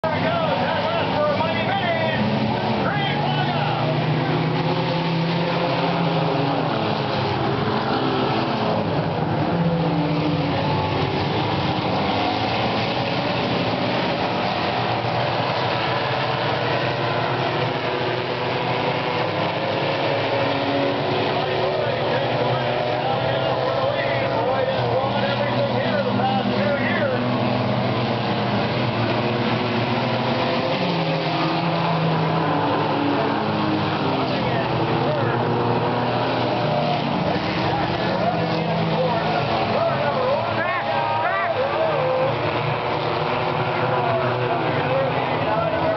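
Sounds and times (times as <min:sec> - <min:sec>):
race car engines running: 0:00.0 - 0:45.9.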